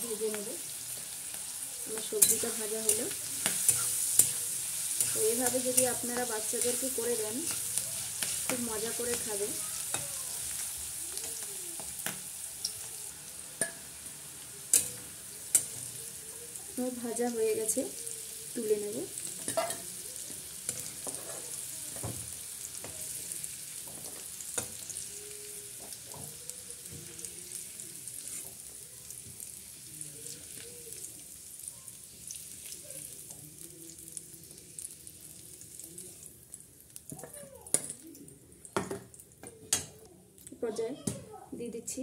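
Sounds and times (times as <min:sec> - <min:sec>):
vegetables sizzling in oil: 0:00.0 - 0:39.9
metal spatula scraping pan: 0:02.0 - 0:10.7, 0:20.8 - 0:21.6.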